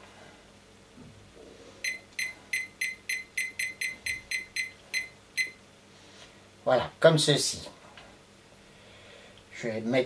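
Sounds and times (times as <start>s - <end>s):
short high beeps: 1.8s - 5.6s.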